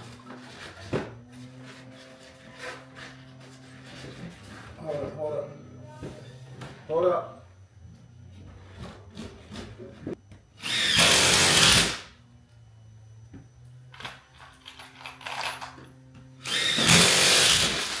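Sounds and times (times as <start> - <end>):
power drill running: 10.6 - 12.0, 16.4 - 18.0.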